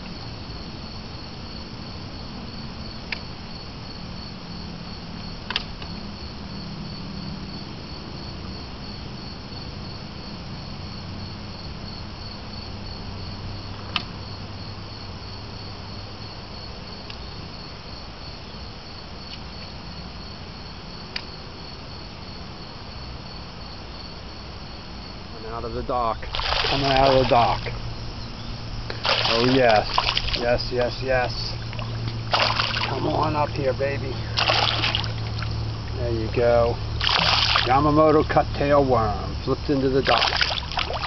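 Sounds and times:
insects chirping: 0.0 - 41.0.

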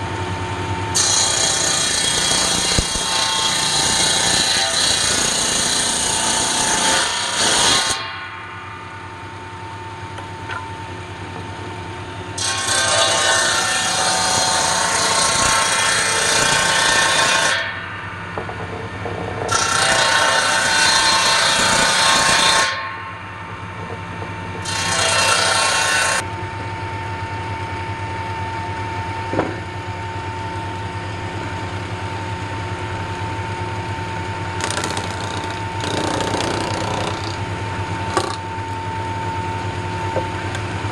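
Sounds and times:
table saw humming: 0.9 - 8.1, 34.6 - 40.6
saw blade cutting wood: 1.0 - 8.2, 12.4 - 17.9, 19.5 - 22.9, 24.6 - 26.2, 34.6 - 37.4, 38.0 - 38.4.

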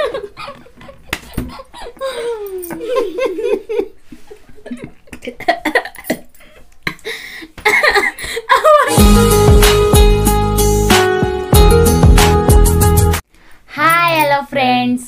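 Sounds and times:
man and woman laughing: 0.0 - 6.3, 7.6 - 9.0.

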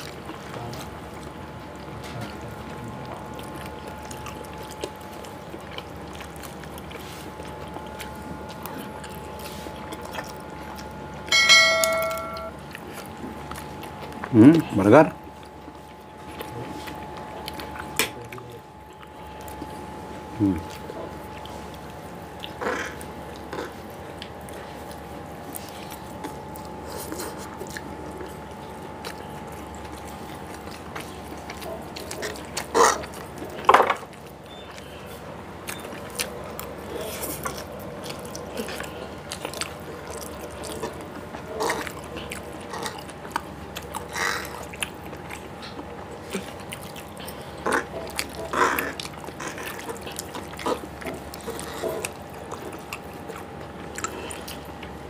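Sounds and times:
faint steady hum: 0.0 - 55.0
wet chewing: 0.0 - 55.0
lip smacks: 15.4 - 55.0.

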